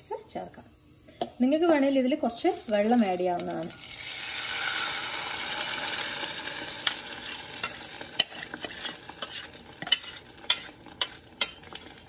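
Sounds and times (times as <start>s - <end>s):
spoon scraping a bowl: 6.8s - 12.0s.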